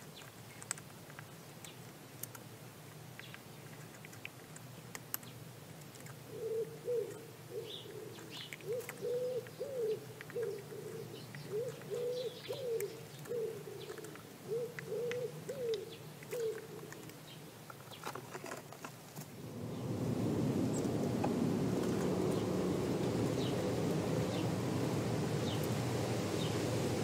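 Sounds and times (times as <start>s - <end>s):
pigeon cooing: 6.2s - 17.2s.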